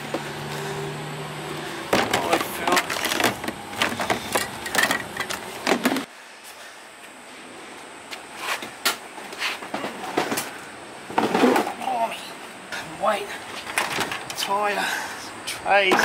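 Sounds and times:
plastic crates knocking: 1.9 - 4.2
paint tins and cans clattering: 1.9 - 6.1.

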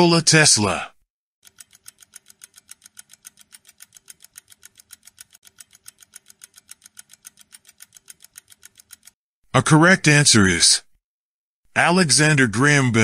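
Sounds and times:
clock ticking fast: 1.4 - 9.2.

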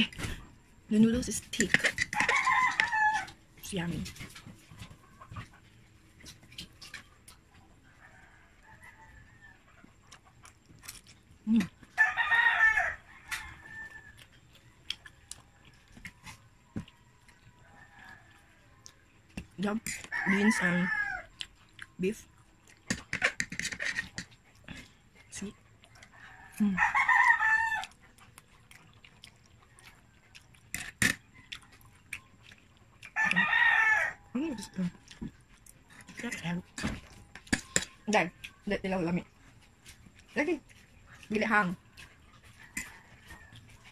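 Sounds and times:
rooster crowing: 2.1 - 3.4, 12.0 - 14.3, 20.0 - 21.3, 26.0 - 28.0, 33.2 - 34.7.

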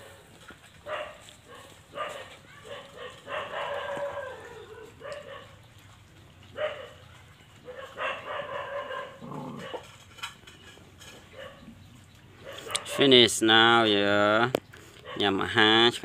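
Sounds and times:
dogs whining and yelping: 0.9 - 5.7, 6.5 - 10.0, 11.0 - 13.0.

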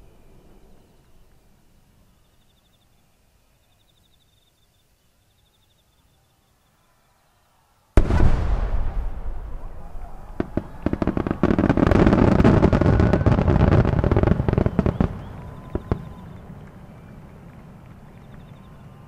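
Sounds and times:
firework boom: 8.0 - 15.2
fireworks crackling and popping: 8.0 - 19.0.

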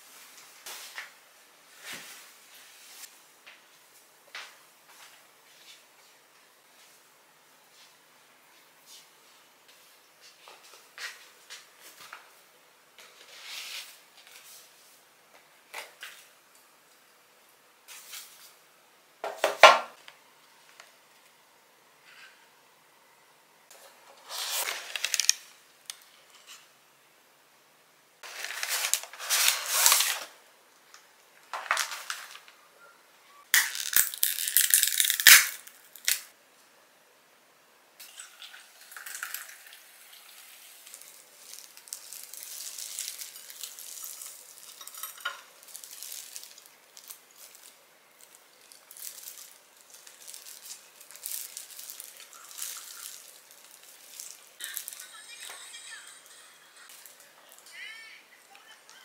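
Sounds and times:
food packaging rustling: 23.7 - 26.7, 28.2 - 30.4, 31.4 - 32.6, 39.0 - 55.2.

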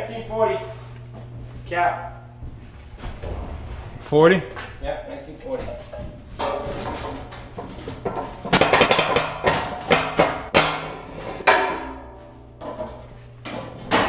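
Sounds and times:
metal clanks and bangs: 5.4 - 14.0.

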